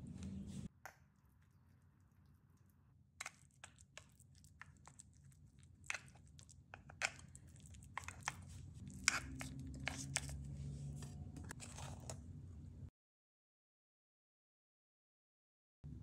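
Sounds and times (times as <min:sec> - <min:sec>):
spoon pressing moist mixture: 0:01.1 - 0:12.2.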